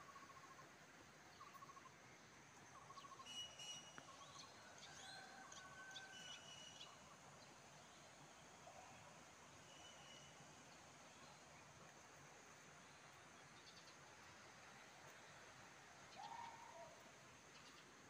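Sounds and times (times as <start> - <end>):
faint birdsong trills: 2.7 - 7.2.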